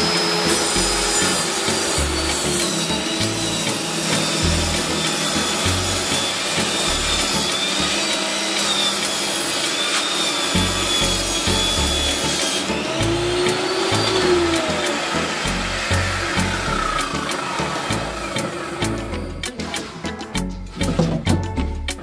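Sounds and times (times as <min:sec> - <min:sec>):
background music: 0:00.0 - 0:09.6, 0:10.3 - 0:22.0
power tool rasping wood: 0:00.0 - 0:20.0.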